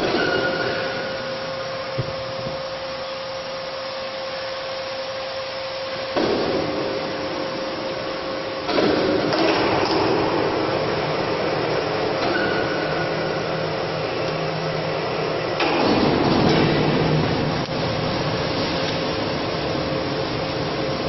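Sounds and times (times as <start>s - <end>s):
electric drive whine: 0.0s - 21.0s
noisy hiss: 0.0s - 21.0s.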